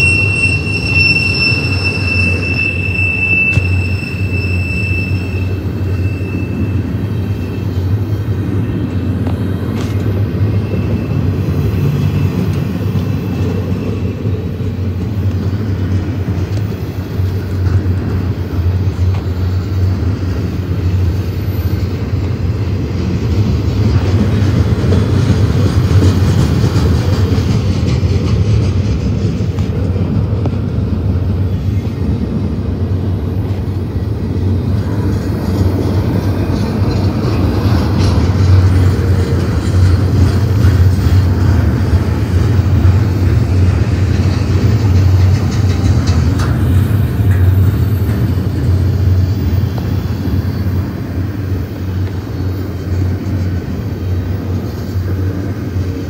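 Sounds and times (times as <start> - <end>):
train wheels on rails: 0.0 - 56.0.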